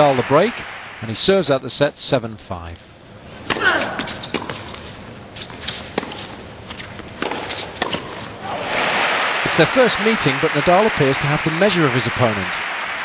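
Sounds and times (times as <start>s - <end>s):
crowd applause: 0.0s - 1.1s, 8.4s - 13.0s
racquets hitting tennis ball: 3.4s - 10.8s.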